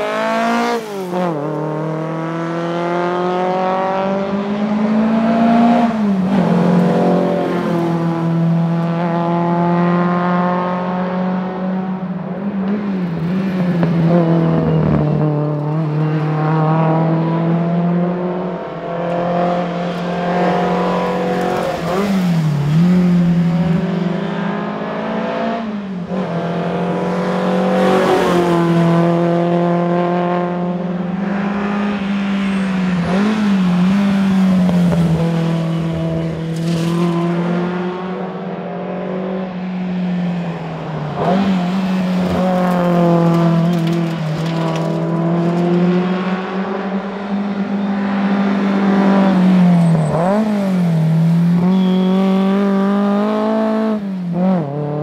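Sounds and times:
car engine revving: 0:40.4 - 0:55.0.

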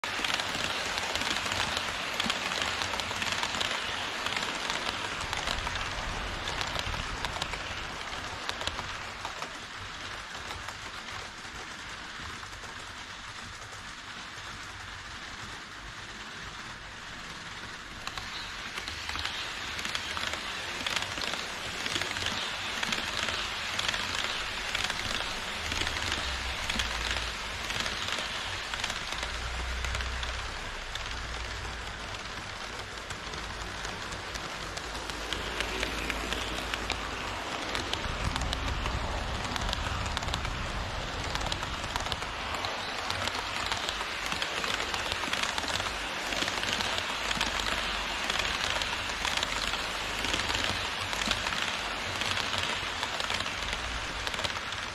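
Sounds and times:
model train wheels rattling on rails: 0:00.0 - 0:54.9.

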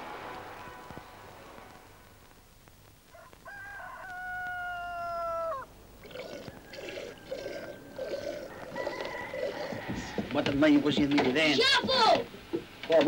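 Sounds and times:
rooster crowing: 0:03.1 - 0:05.7, 0:06.4 - 0:10.3.

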